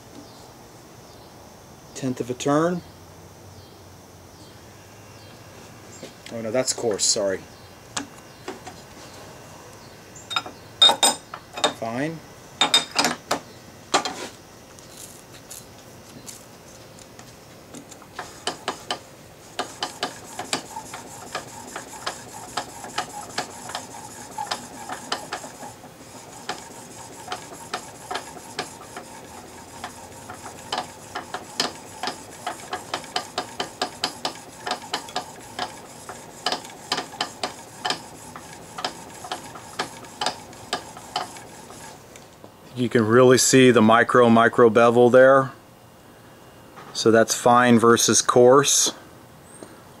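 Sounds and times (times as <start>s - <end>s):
blade rasping on sharpening plate: 18.2s - 42.0s
sharp ticks from honing strokes: 18.2s - 42.0s.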